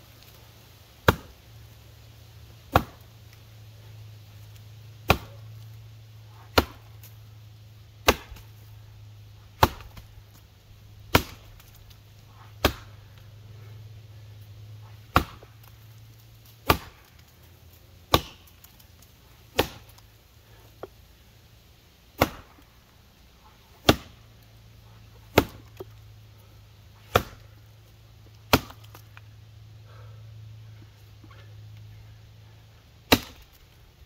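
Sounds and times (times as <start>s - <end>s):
axe chopping wood: 1.0s - 1.4s, 2.6s - 3.2s, 5.0s - 5.6s, 6.4s - 7.2s, 8.0s - 8.6s, 9.4s - 10.2s, 11.0s - 13.1s, 14.9s - 15.9s, 16.5s - 17.3s, 18.0s - 18.8s, 19.4s - 20.0s, 22.1s - 22.7s, 23.6s - 24.2s, 25.2s - 26.0s, 27.0s - 27.5s, 28.4s - 29.2s, 33.0s - 33.7s.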